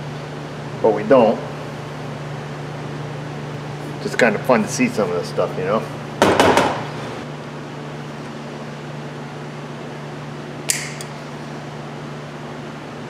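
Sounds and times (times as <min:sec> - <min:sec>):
fan humming: 0:00.0 - 0:13.0
sharp metallic click: 0:10.7 - 0:11.2.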